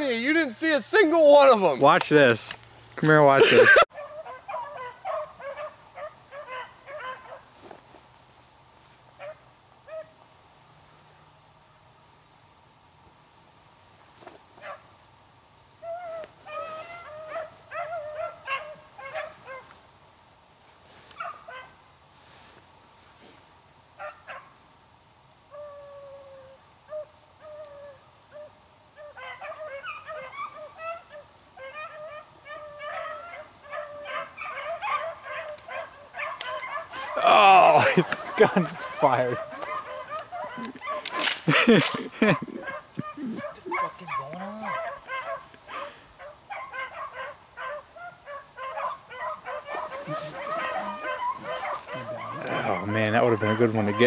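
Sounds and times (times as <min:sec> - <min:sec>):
beagles baying: 0:03.4 - 0:07.7, 0:09.1 - 0:10.3, 0:14.6 - 0:15.0, 0:15.8 - 0:19.8, 0:20.9 - 0:22.6, 0:24.0 - 0:24.7, 0:25.4 - 0:54.0.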